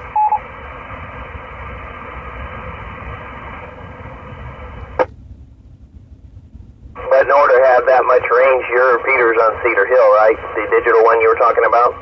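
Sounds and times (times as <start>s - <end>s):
low rumble: 0.0s - 12.0s
short beep: 0.1s - 0.4s
radio hiss: 7.0s - 12.0s.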